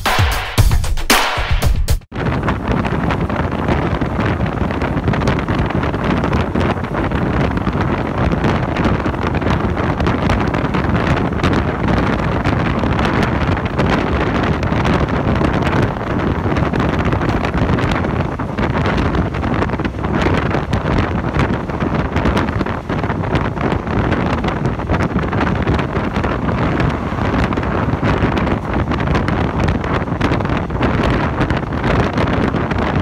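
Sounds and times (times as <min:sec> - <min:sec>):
wind buffeting microphone: 0:02.1 - 0:33.0
vehicle rumble: 0:02.2 - 0:33.0.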